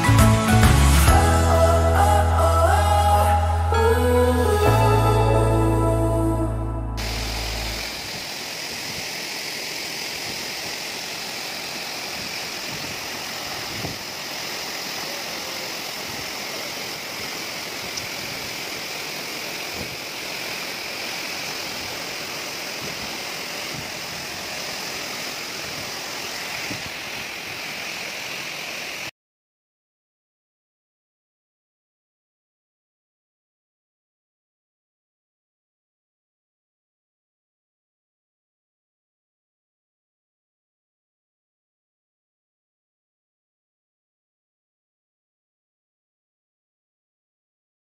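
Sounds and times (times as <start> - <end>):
waterfall rushing into pool: 7.0 - 29.1.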